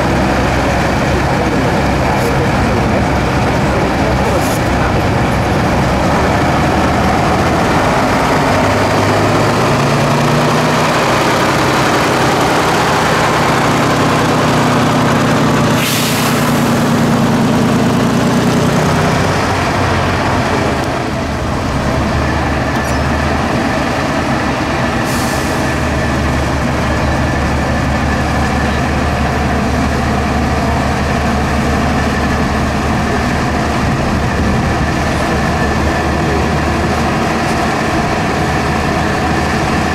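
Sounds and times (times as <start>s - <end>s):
truck diesel engine under load: 0.0s - 39.9s
short air hisses: 15.8s - 16.6s, 25.0s - 25.7s.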